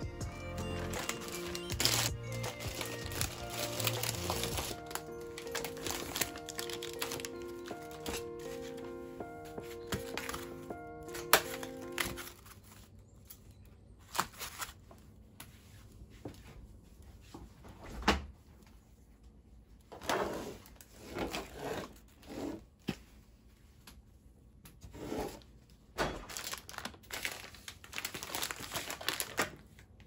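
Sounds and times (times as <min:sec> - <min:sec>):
background music: 0:00.0 - 0:12.4
plastic packaging crinkling: 0:00.5 - 0:13.0, 0:26.3 - 0:30.0.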